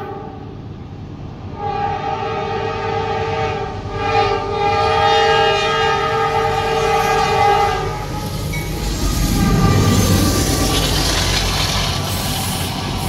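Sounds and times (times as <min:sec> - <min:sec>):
locomotive air horn blast: 0:00.0 - 0:00.6, 0:01.5 - 0:10.4.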